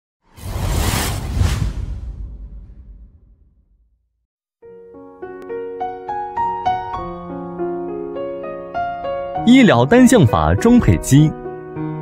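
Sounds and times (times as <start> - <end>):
whoosh sound effect: 0.3 - 3.9
deep rumble: 0.4 - 4.0.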